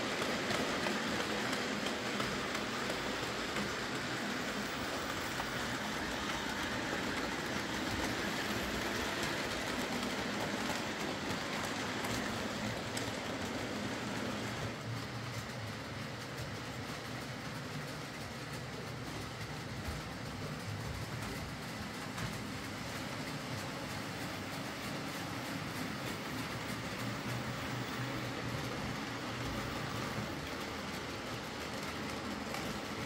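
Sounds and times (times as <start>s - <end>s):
model train motors whirring: 0.0s - 33.0s
wheels clicking over rail joints: 0.0s - 33.0s.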